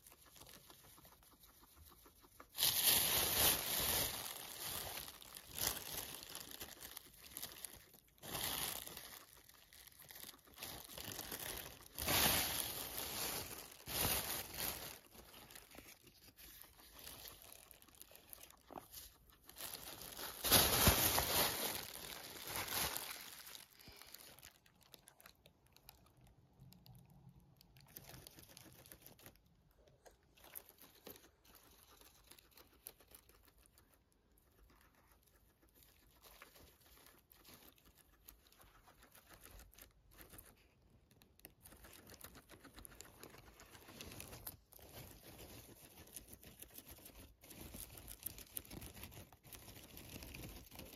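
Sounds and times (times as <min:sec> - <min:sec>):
guinea pig nibbling: 0:00.0 - 0:50.9
plastic bag crinkling: 0:02.5 - 0:33.6, 0:41.5 - 0:50.9.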